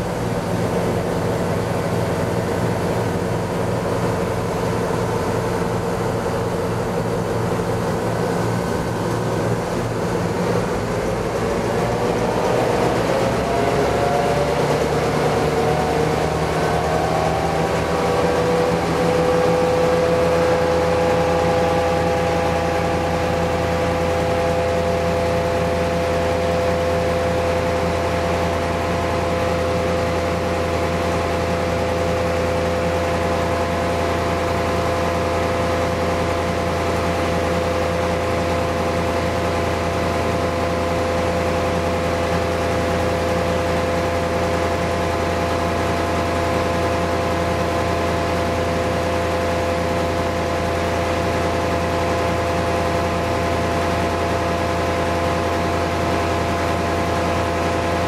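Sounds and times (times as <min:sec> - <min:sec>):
diesel engine revving up: 0:00.0 - 0:26.5
constant low drone: 0:00.0 - 0:58.0
whine climbing in pitch: 0:00.6 - 0:27.2.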